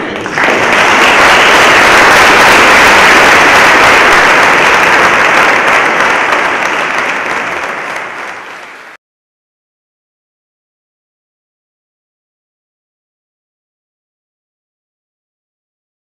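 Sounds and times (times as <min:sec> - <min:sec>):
large audience applauding: 0:00.0 - 0:09.0.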